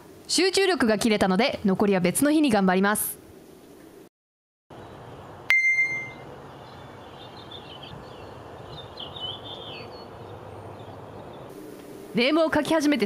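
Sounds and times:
outdoor background hiss: 0.0s - 4.1s, 4.7s - 13.0s
small birds chirping: 4.7s - 11.5s
bright ding: 5.5s - 6.2s.

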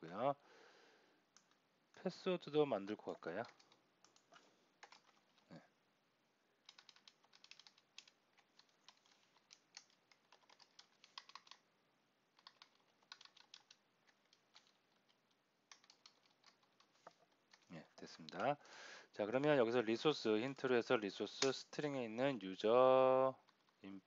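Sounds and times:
faint keyboard typing: 1.3s - 2.1s, 2.8s - 5.6s, 6.6s - 11.7s, 12.3s - 18.6s, 23.4s - 24.0s.

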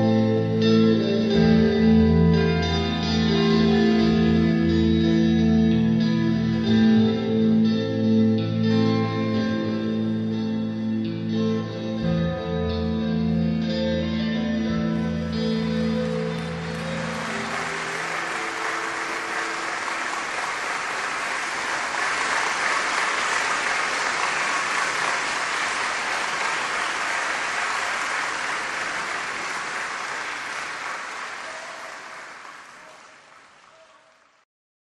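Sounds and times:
guitar-led song: 0.0s - 19.1s
audience applauding: 15.4s - 34.4s.

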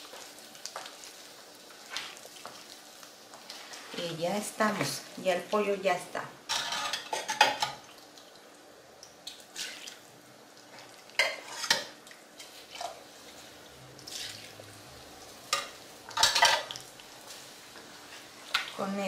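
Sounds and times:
utensils scraping and clinking cookware: 6.5s - 7.8s, 11.2s - 13.0s, 15.5s - 16.8s.

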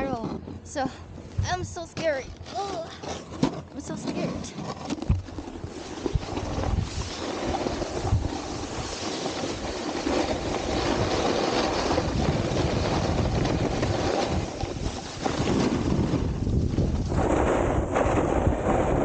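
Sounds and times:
snowboard scraping on icy snow: 2.5s - 19.0s
wind buffeting microphone: 5.1s - 19.0s.

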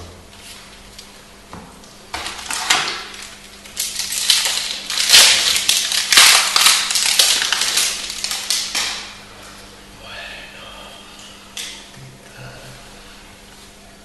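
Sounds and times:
foil wrapper crinkling: 2.2s - 9.2s.

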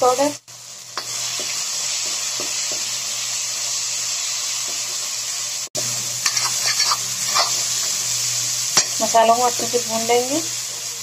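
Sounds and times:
masala sizzling in oil: 0.0s - 11.0s
faint spatula scrapes: 6.2s - 7.7s.

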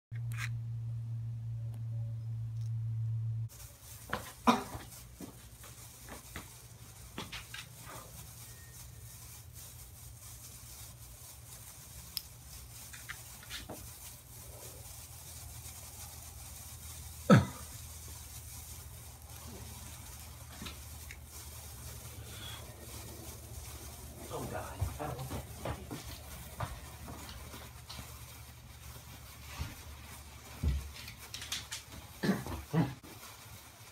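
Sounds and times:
firework hissing and crackling: 11.3s - 31.0s.

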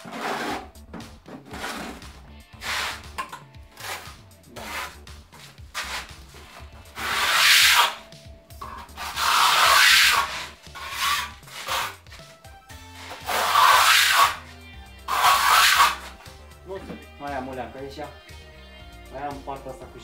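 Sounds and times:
trowel scraping plaster on wall: 0.0s - 0.8s, 1.4s - 16.3s
faint background music: 0.0s - 20.0s.

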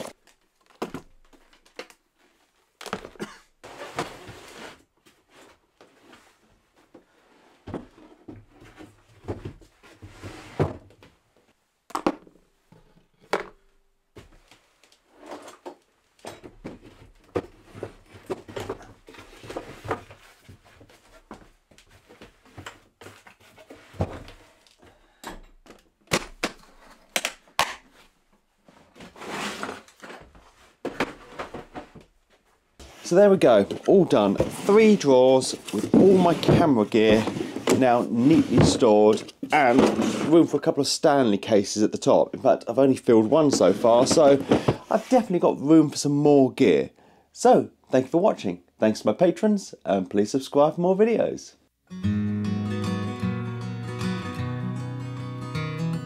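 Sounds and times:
wooden drawers sliding: 32.8s - 40.5s, 43.3s - 45.2s.

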